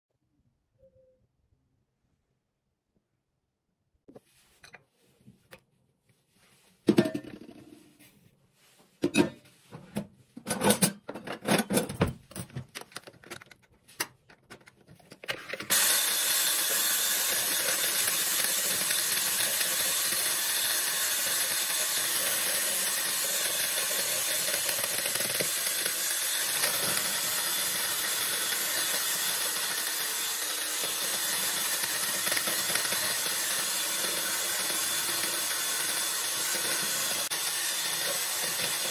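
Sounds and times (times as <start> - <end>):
electric hand mixer beating: 15.7 - 38.9.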